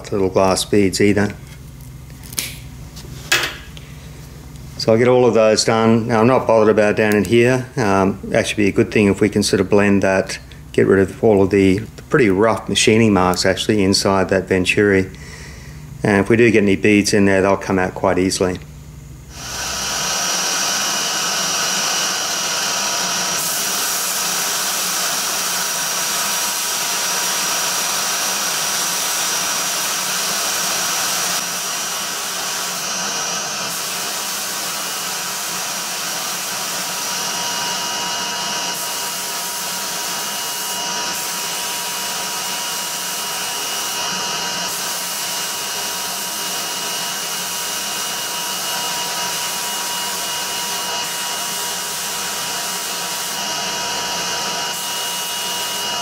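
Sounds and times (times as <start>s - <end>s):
blast gun hissing: 19.3s - 31.2s.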